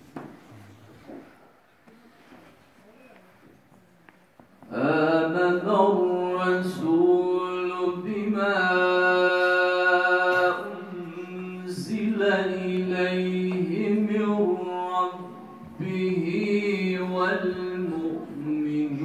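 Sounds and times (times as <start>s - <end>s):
man reciting melodically: 4.7s - 19.0s.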